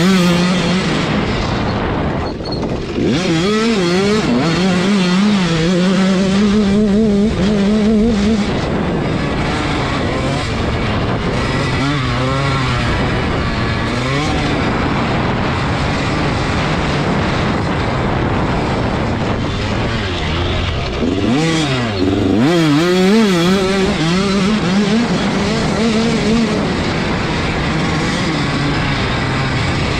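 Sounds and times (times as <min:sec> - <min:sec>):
dirt bike engine revving: 0:00.0 - 0:29.9
wind rush on microphone: 0:00.0 - 0:29.9.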